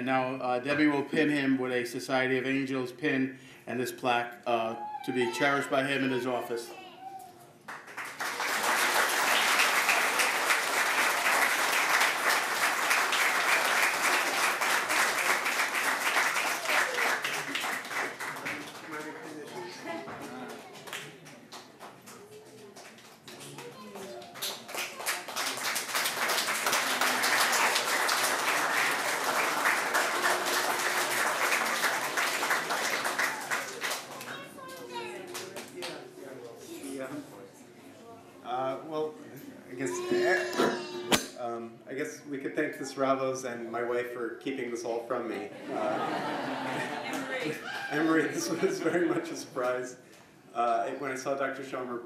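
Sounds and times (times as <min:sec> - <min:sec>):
audience applauding: 0:07.7 - 0:35.9, 0:46.0 - 0:48.4.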